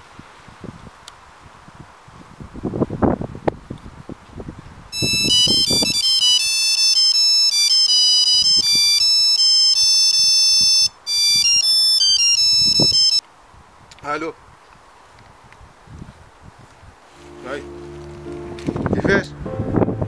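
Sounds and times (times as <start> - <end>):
phone ringtone beeping melody: 5.0 - 13.2
rustling and handling noise: 17.1 - 18.9.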